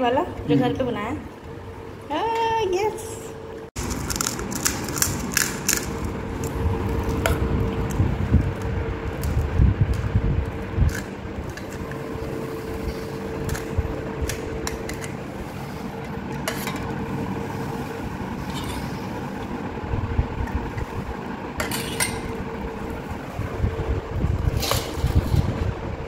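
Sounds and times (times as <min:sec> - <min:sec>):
steady background hum: 0:00.0 - 0:26.0
spoon clinking steel bowls: 0:21.6 - 0:22.3.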